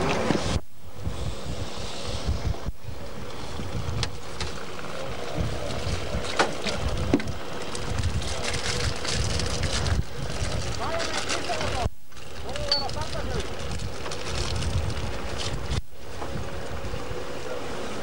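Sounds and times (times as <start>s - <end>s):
wind buffeting microphone: 0.0s - 17.4s.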